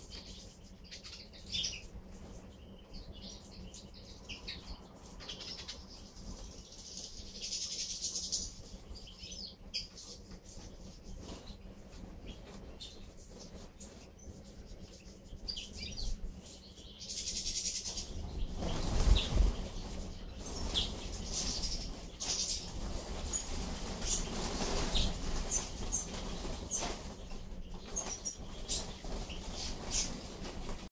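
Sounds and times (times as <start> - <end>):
flapping wings: 17.8 - 30.9.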